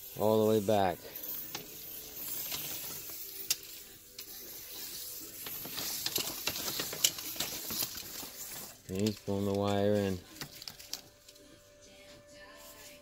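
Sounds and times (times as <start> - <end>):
fish tape scraping in wall: 1.3 - 11.4.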